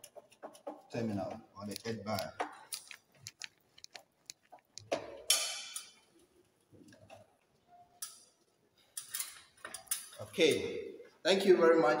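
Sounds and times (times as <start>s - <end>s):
screwdriver clicking and scraping metal: 1.7s - 5.9s.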